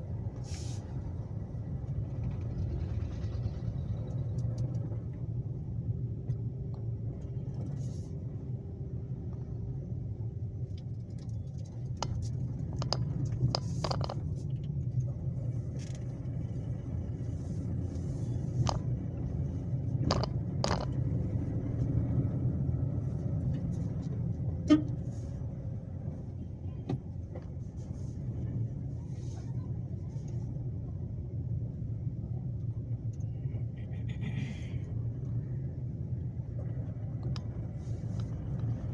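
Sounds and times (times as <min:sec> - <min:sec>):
car engine and road rumble: 0:00.0 - 0:38.9
sharp clicks and knocks: 0:10.7 - 0:14.8, 0:18.6 - 0:19.0, 0:20.0 - 0:21.1.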